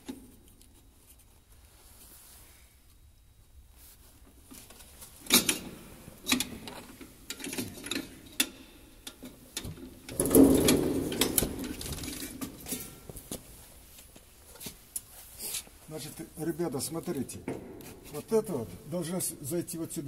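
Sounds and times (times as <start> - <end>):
clothing rubbing and rustling: 0.8 - 3.0, 3.6 - 7.3, 10.4 - 16.4.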